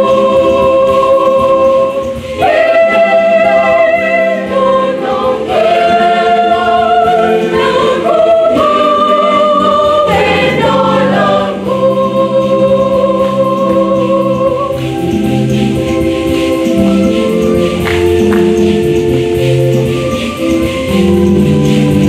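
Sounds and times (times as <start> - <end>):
choir singing in harmony: 0.0 - 22.0.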